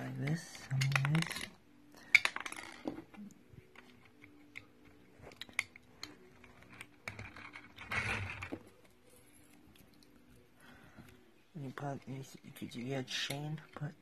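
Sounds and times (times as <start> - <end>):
plastic bricks clicking: 0.2 - 8.8.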